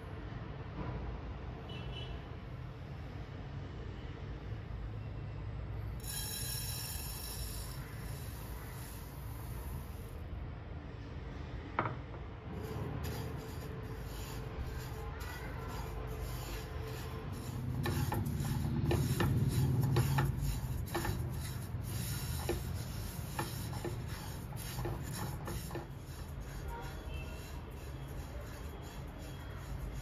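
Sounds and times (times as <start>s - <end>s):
spatula stirring seeds in pan: 6.0s - 10.1s, 12.6s - 30.0s.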